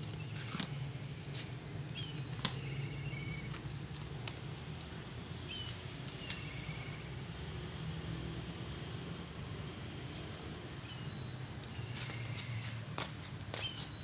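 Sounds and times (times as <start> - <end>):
small bird chirping: 0.0 - 4.6, 5.4 - 7.1, 10.7 - 12.9, 13.5 - 14.0.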